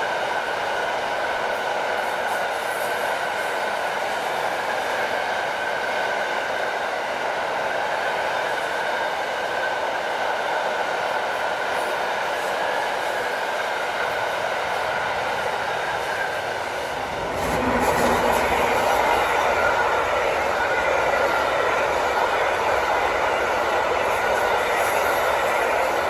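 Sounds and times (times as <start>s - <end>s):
freight train wheels rolling on rail: 0.0s - 26.0s.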